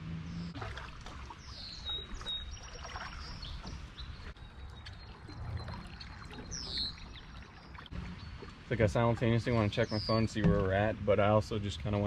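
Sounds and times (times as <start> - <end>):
water trickling and splashing: 0.3 - 12.0
paddles dipping in water: 0.4 - 12.0.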